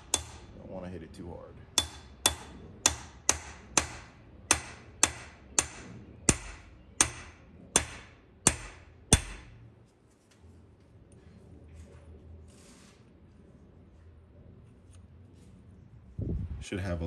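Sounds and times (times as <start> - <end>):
hammer tapping on steel: 0.0 - 0.6, 1.8 - 9.6.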